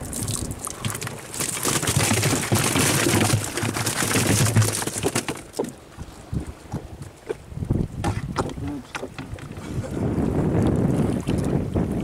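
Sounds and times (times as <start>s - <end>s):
fish clattering into a hold: 0.2s - 5.8s.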